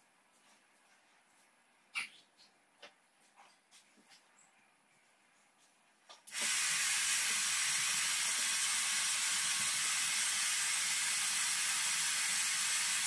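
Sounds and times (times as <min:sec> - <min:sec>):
hair dryer blowing air: 0:06.3 - 0:13.0.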